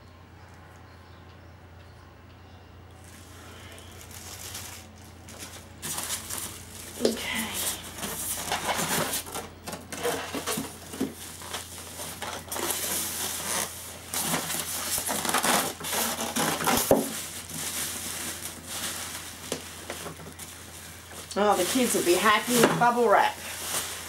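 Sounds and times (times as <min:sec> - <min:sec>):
bubble wrap crinkling: 0:03.0 - 0:24.0
polystyrene foam being moved: 0:03.0 - 0:24.0.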